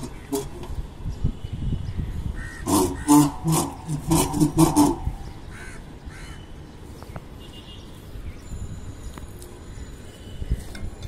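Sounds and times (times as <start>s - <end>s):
crows cawing: 2.4s - 6.5s.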